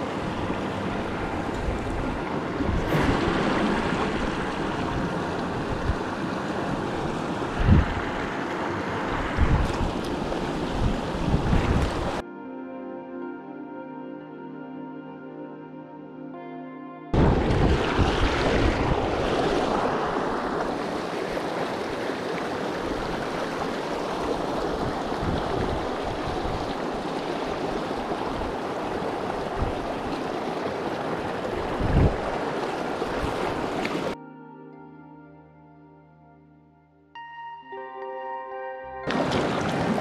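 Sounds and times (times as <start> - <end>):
creek rushing over rocks: 0.0 - 12.2, 17.2 - 34.2, 39.1 - 40.0.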